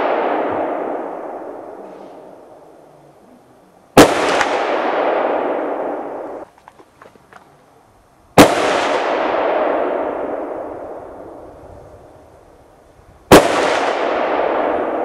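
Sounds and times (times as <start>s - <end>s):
rifle shots echoing: 0.0s - 2.6s, 4.0s - 6.4s, 8.4s - 11.4s, 13.3s - 15.0s.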